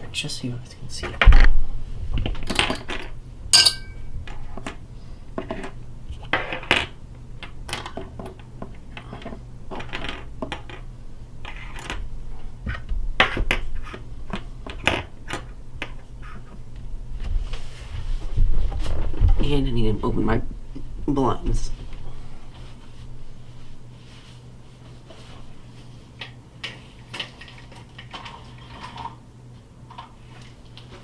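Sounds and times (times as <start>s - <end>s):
short metallic clink: 3.5s - 4.1s.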